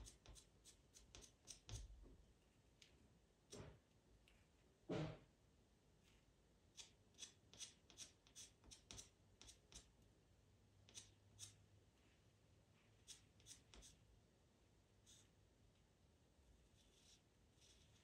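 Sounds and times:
pencil scratching on paper: 0.0s - 1.9s, 6.7s - 9.9s, 13.0s - 14.0s, 15.0s - 15.3s, 16.7s - 18.0s.

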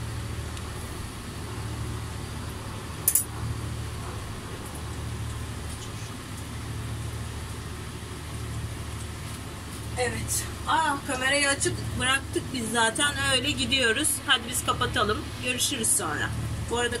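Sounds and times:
low mechanical hum: 0.0s - 17.0s
sharp clink: 3.0s - 3.3s.

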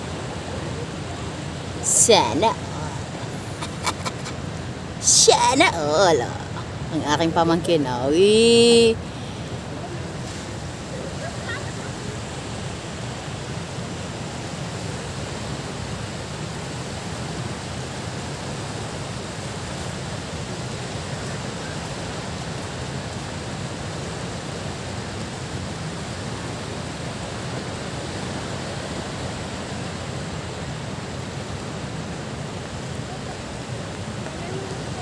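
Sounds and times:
seashore rushing hiss: 8.4s - 35.0s.

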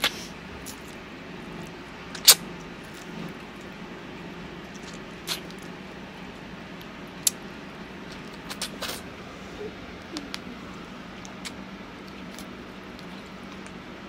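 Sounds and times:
eating ice cream mouth sounds: 0.0s - 3.8s, 4.5s - 14.0s.

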